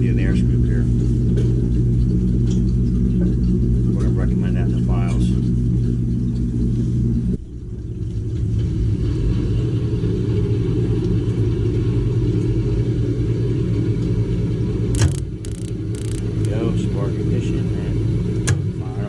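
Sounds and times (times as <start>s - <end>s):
gas burners rumbling: 0.0s - 19.0s
sharp click: 15.0s - 16.6s.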